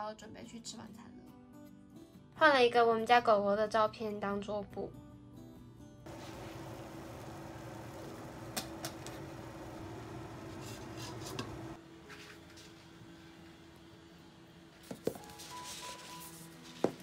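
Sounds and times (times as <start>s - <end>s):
steamer pot low rushing hum: 6.1s - 11.8s.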